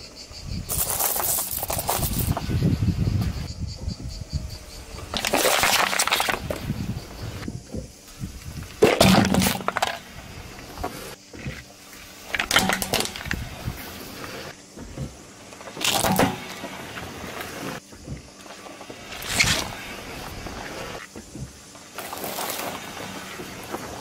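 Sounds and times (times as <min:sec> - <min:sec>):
car tyre rolling on asphalt: 0:00.7 - 0:24.0
metal tin crushed: 0:05.1 - 0:06.6, 0:08.8 - 0:10.2, 0:12.3 - 0:13.5, 0:15.8 - 0:16.8
plastic bottle crackling flat: 0:05.1 - 0:06.7.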